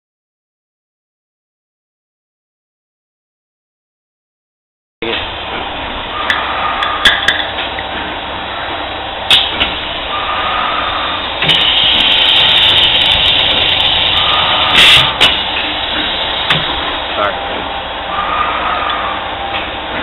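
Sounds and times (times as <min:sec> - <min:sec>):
roller forming machine running: 0:05.0 - 0:20.0.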